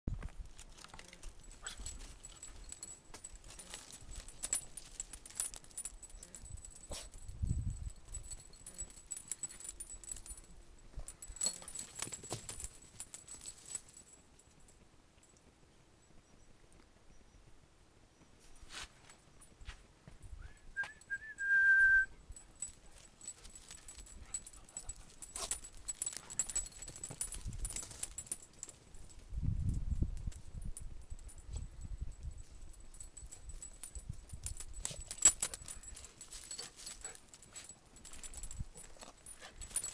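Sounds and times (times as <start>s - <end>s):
light clicks and rustles: 0.1s - 15.5s, 22.3s - 39.9s
person whistling: 20.4s - 22.2s.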